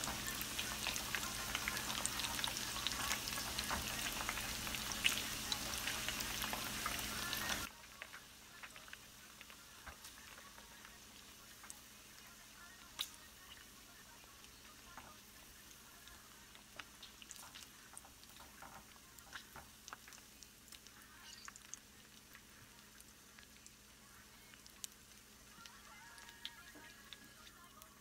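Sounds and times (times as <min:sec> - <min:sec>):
ribs sizzling in hot oil: 0:00.0 - 0:28.0.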